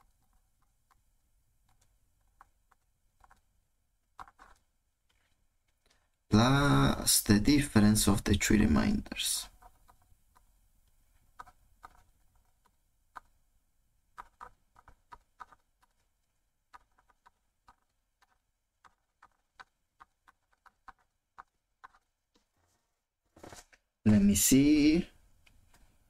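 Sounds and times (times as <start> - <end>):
stylus tapping on tablet: 11.3 - 13.4, 14.1 - 16.1, 16.7 - 22.1.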